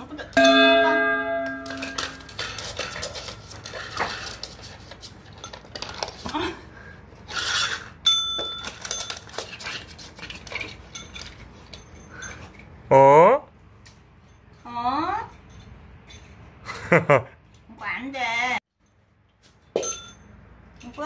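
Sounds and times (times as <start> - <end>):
call bell ding: 0.4 - 2.4
small dogs moving on floor: 1.7 - 6.6.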